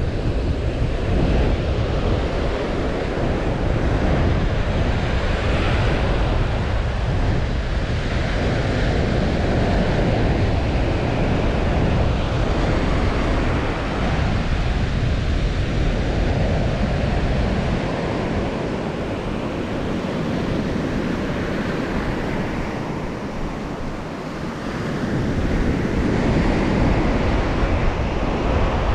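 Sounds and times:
small waves washing on beach: 0:00.0 - 0:28.9
wind buffeting microphone: 0:00.0 - 0:28.9.

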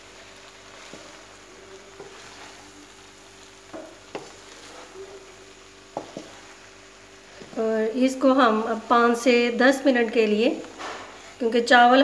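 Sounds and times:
food sizzling in pan: 0:00.0 - 0:12.0
spatula knocking against pan: 0:03.7 - 0:04.4.

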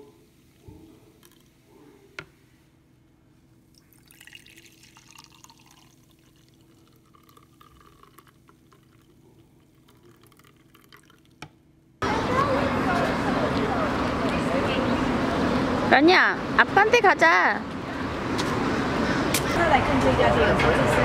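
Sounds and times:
faint steady hum: 0:00.0 - 0:18.2
liquid pouring and dripping: 0:01.2 - 0:01.5, 0:03.7 - 0:11.6.

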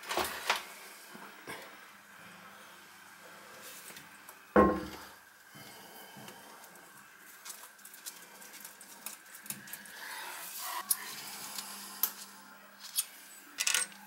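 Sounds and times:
toilet knocking onto tile floor: 0:04.6 - 0:05.0
small parts clicking and tapping: 0:12.8 - 0:14.0.

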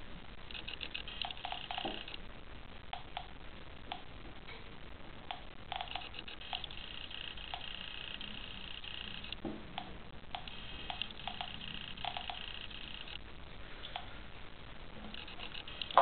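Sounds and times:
geiger counter clicking: 0:00.5 - 0:02.2, 0:02.9 - 0:04.1, 0:05.2 - 0:13.2, 0:15.0 - 0:16.0
high buzzing: 0:05.3 - 0:13.5.

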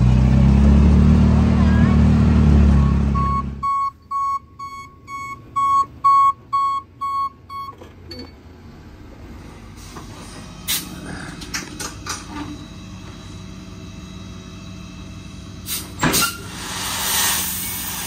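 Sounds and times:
vehicle engine running: 0:00.0 - 0:18.0
reverse alarm beeping: 0:02.8 - 0:07.8.

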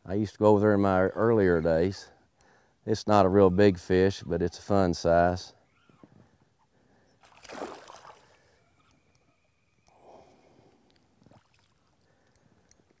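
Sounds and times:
water splashing and sloshing: 0:07.2 - 0:08.6, 0:11.1 - 0:12.1.

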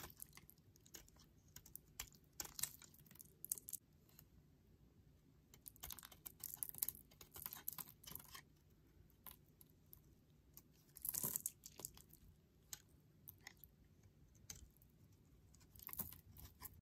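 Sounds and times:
knife scraping soap: 0:00.0 - 0:03.7, 0:05.5 - 0:08.6, 0:10.5 - 0:16.8.

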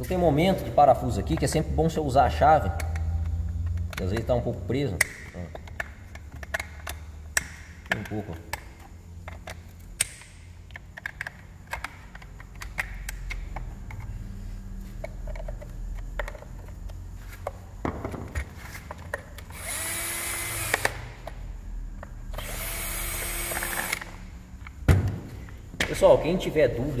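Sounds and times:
tools clicking and knocking: 0:01.2 - 0:01.7, 0:02.6 - 0:14.1, 0:15.0 - 0:19.8
electric screwdriver running: 0:19.5 - 0:21.0, 0:22.4 - 0:24.2.

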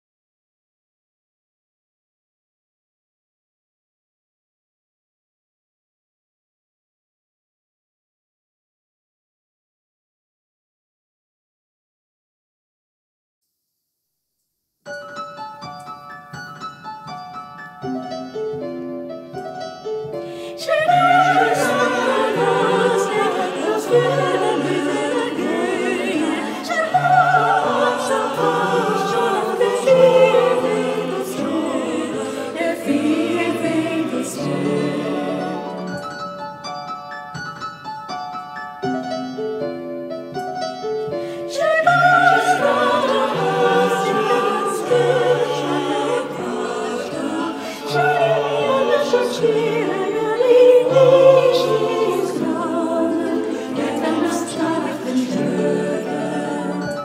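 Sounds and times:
piano accompaniment: 0:14.9 - 0:56.3
mixed choir singing: 0:20.4 - 0:36.2, 0:41.5 - 0:57.0.

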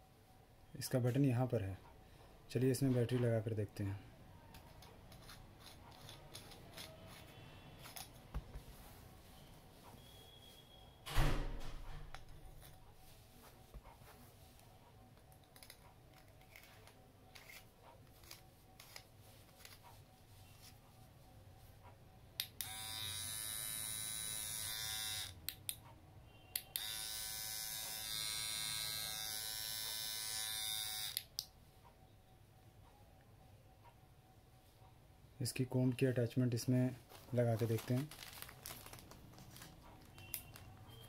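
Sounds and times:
hair trimmer buzzing: 0:22.6 - 0:25.4, 0:26.8 - 0:31.2.

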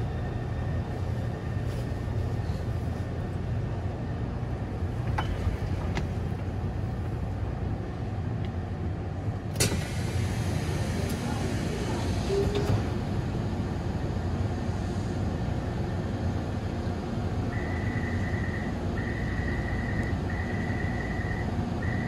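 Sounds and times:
low rumble inside train car: 0:00.0 - 0:22.0.

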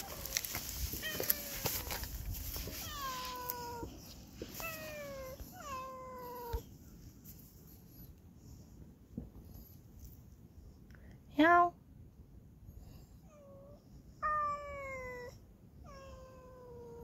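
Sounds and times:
cat meowing: 0:00.0 - 0:02.1, 0:02.7 - 0:04.0, 0:13.3 - 0:17.0.

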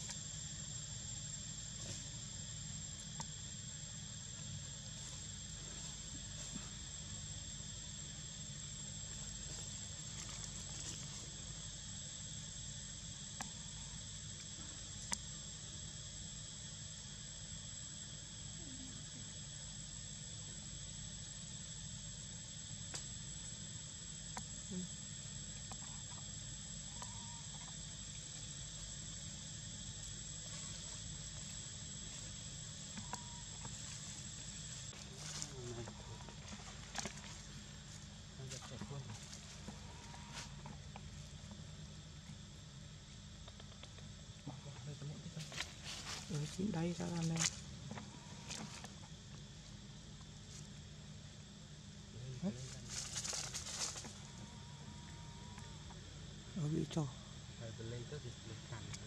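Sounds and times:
insects singing: 0:00.0 - 0:59.0
faint ticks: 0:26.9 - 0:28.2.

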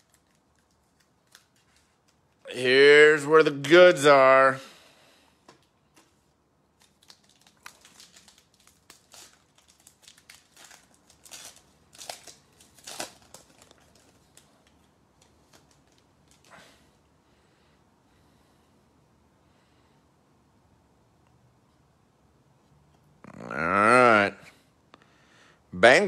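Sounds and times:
foil wrappers tearing and crinkling: 0:00.0 - 0:02.2, 0:06.8 - 0:16.5.

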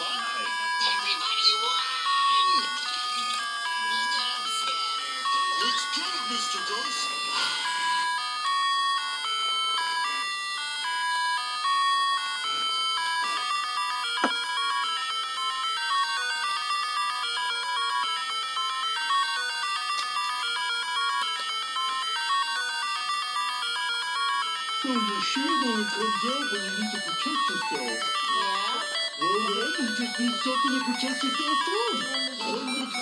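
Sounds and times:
electronic beeping tune: 0:00.0 - 0:33.0.

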